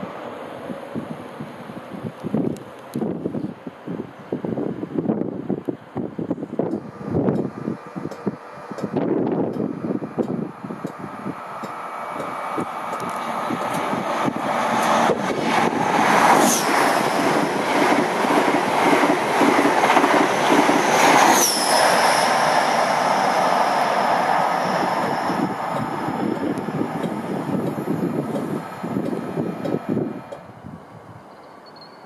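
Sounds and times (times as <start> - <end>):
train wheels rushing on rails: 6.0 - 30.6
clickety-clack of train wheels: 6.6 - 21.9, 24.8 - 30.5.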